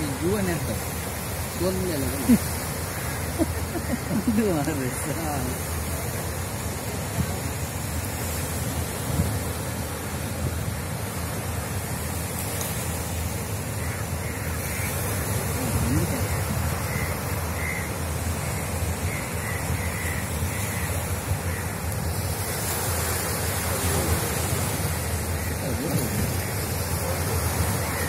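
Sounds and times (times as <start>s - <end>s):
water washing against rocks: 0.0s - 28.0s
crow cawing: 2.8s - 4.1s, 13.8s - 22.1s, 24.8s - 28.0s
wind on microphone: 7.0s - 11.4s.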